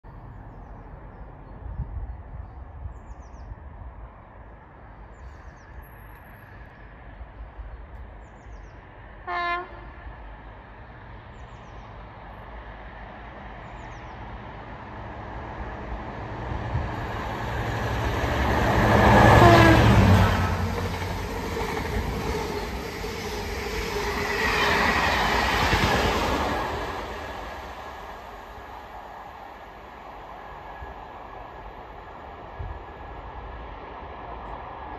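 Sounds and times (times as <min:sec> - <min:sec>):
diesel locomotive passing: 0:05.7 - 0:34.9
train horn blast: 0:09.2 - 0:10.0, 0:19.1 - 0:20.6.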